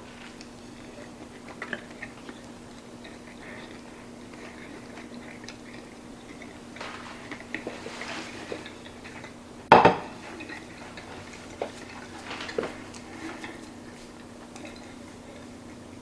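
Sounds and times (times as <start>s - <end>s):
steady low hum: 0.0s - 16.0s
plate clattering on counter: 9.7s - 10.1s.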